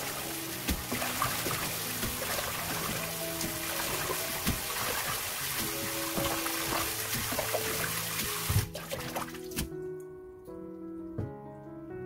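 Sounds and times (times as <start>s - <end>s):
tap water running into basin: 0.0s - 9.7s
water splashes and drips: 0.0s - 9.8s
background music: 0.0s - 12.0s.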